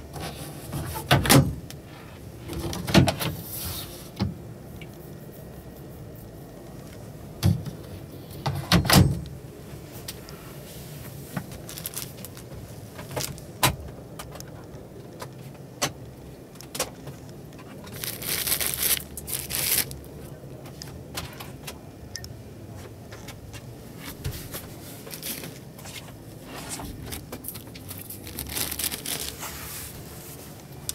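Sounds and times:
rustling: 0:09.6 - 0:13.6, 0:17.2 - 0:20.0, 0:23.9 - 0:30.9.

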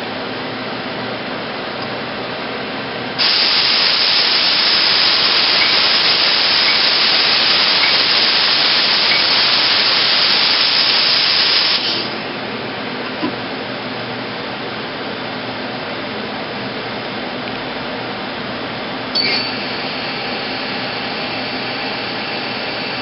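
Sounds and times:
machine running hum: 0:00.0 - 0:23.0
spray jet hissing: 0:03.2 - 0:12.3.

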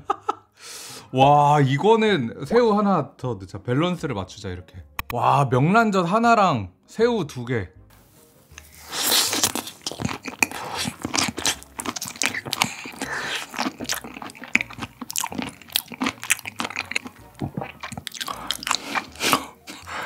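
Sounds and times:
close-miked chewing: 0:08.6 - 0:20.0.

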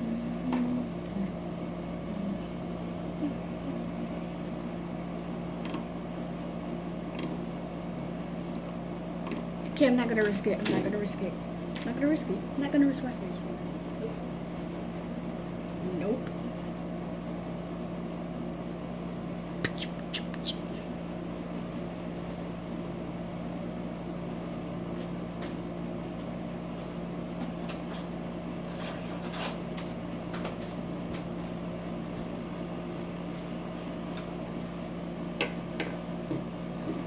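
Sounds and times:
steady low hum: 0:00.0 - 0:37.0
fidget spinner clicks: 0:07.1 - 0:07.4, 0:08.5 - 0:10.9.

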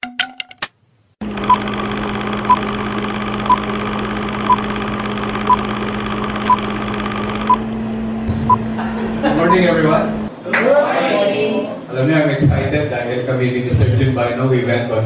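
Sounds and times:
film projector whirr with hum: 0:01.2 - 0:10.3.

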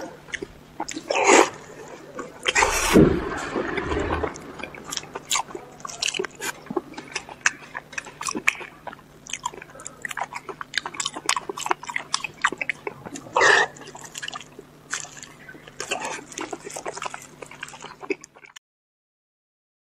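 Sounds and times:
person chewing with wet smacks: 0:00.0 - 0:02.9, 0:04.3 - 0:18.6
loud wet mouth sound: 0:02.4 - 0:03.1.

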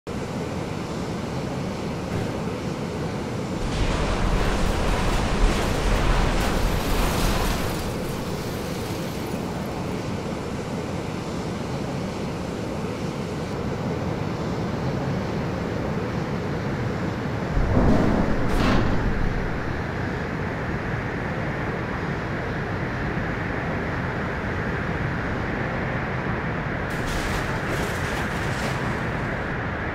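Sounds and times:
rushing wind noise: 0:01.7 - 0:29.9
loud blast: 0:17.6 - 0:19.9.

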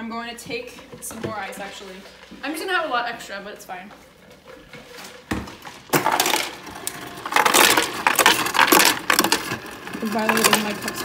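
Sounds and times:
ice cubes clattering into blender jar: 0:05.9 - 0:11.0.

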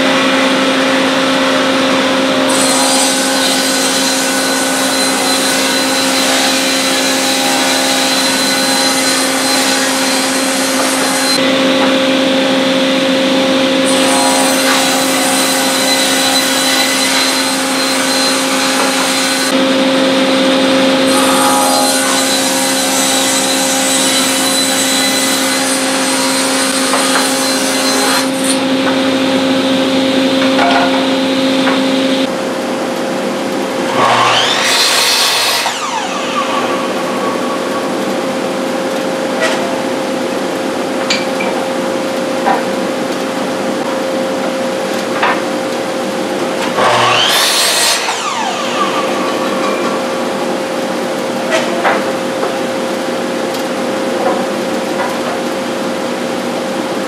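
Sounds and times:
miter saw blade whine: 0:00.0 - 0:32.4, 0:33.8 - 0:40.3, 0:46.7 - 0:51.6
table saw ripping wood: 0:00.2 - 0:12.0, 0:13.6 - 0:19.6, 0:20.2 - 0:31.9, 0:33.8 - 0:39.9, 0:46.4 - 0:52.6.

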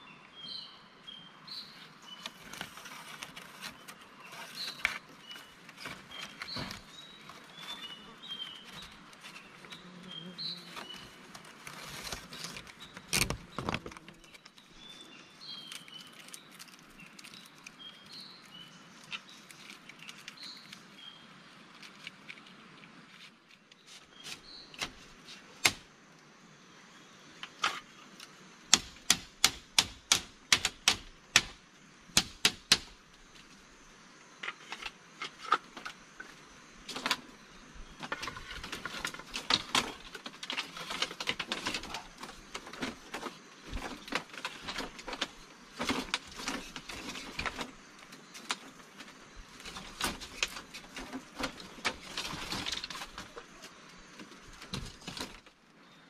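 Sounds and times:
crackling and rustling: 0:01.8 - 0:25.9, 0:32.2 - 0:55.6
wood being struck: 0:28.7 - 0:31.6, 0:32.2 - 0:33.0.

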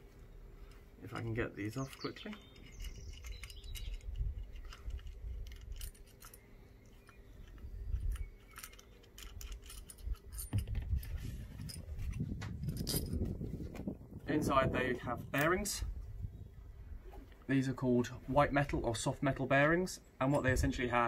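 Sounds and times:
metallic clinks and rattles: 0:01.1 - 0:13.3.

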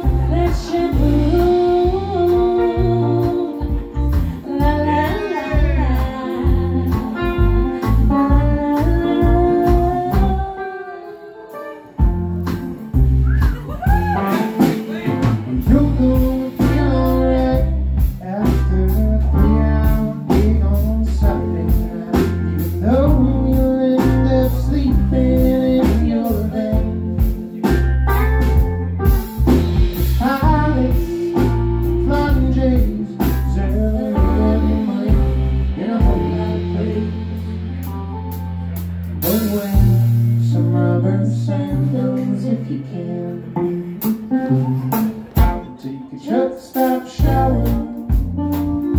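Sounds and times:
drum kit beat: 0:00.0 - 0:10.7, 0:11.5 - 0:42.6, 0:43.6 - 0:45.8, 0:46.5 - 0:48.9
woman singing: 0:00.0 - 0:11.9, 0:15.6 - 0:27.4, 0:30.2 - 0:37.4, 0:40.4 - 0:43.5, 0:45.8 - 0:48.9
bass guitar: 0:00.0 - 0:48.9
electric guitar: 0:00.0 - 0:48.9.

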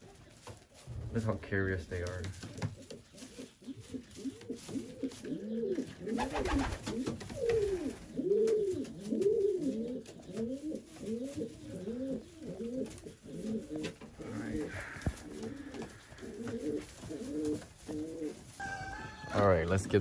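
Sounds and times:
pigeons cooing: 0:02.4 - 0:19.0.

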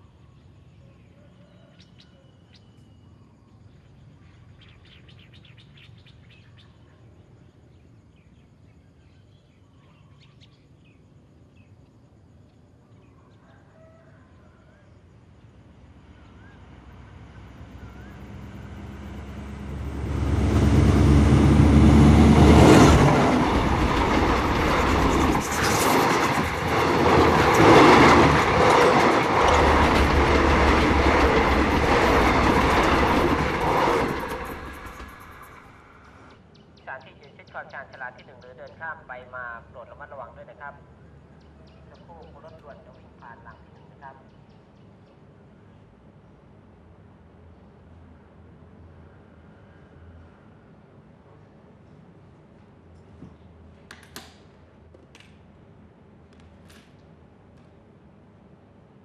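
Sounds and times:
passenger train passing at speed: 0:15.0 - 0:41.0, 0:42.0 - 0:52.3.

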